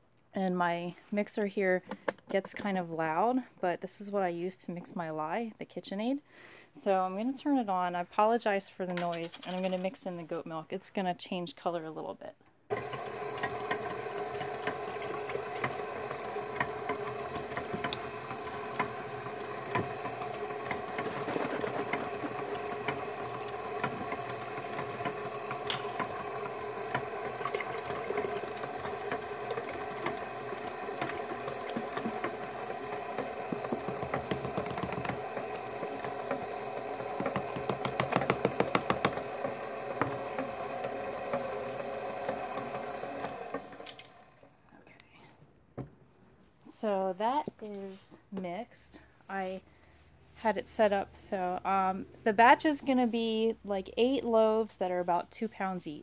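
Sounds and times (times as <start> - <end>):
stand mixer running: 12.7 - 44.4.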